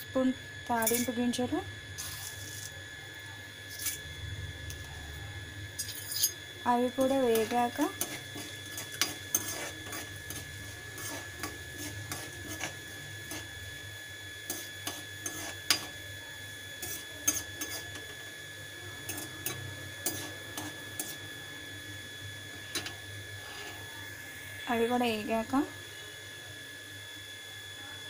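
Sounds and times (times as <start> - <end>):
seeds sizzling in hot oil: 1.9 - 2.8, 5.7 - 23.9
spatula scraping steel pan: 7.3 - 13.5, 14.5 - 15.9, 16.8 - 18.0, 19.1 - 21.2.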